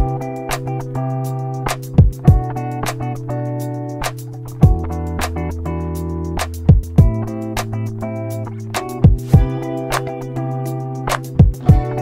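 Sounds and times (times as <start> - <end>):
kick drum: 2.0 - 2.6, 4.6 - 4.9, 6.6 - 7.3, 9.0 - 9.6, 11.4 - 12.0.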